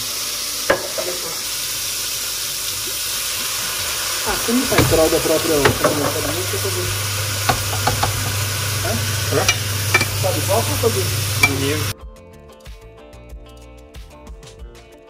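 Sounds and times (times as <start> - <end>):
vegetables sizzling in a pan: 0.0 - 12.0.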